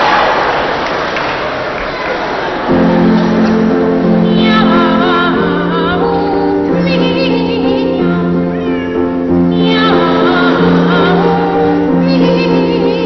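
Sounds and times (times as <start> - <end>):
piano chords: 2.4 - 13.0
boys singing a duet: 9.5 - 13.0.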